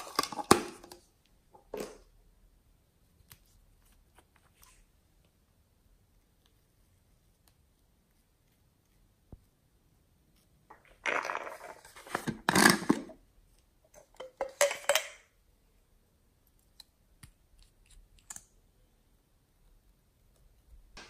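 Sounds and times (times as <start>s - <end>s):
plastic containers rustling and scraping: 0.0s - 2.1s, 10.7s - 13.2s.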